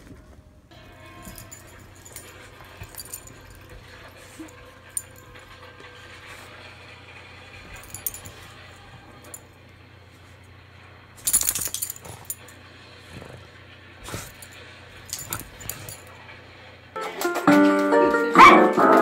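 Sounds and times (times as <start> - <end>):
animals scuffling: 0.0 - 10.5.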